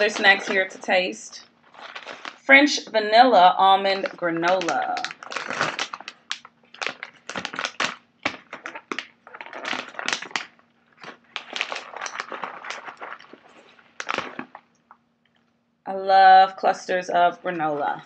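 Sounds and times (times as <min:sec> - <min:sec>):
plastic snack pouch crinkling: 0:00.0 - 0:00.9, 0:01.6 - 0:02.5, 0:03.7 - 0:15.0.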